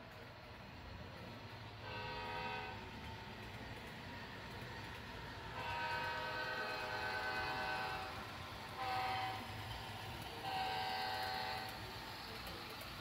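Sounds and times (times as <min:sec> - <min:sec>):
diesel air horn blasts: 0:01.8 - 0:02.8, 0:05.6 - 0:08.2, 0:08.8 - 0:09.5, 0:10.4 - 0:11.7.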